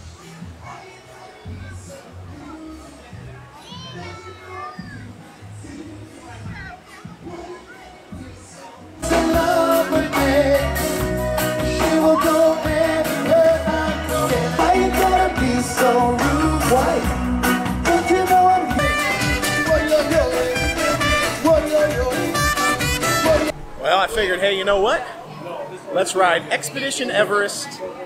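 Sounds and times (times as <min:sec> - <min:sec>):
person singing: 0:07.2 - 0:23.6
live band playing: 0:09.0 - 0:23.8.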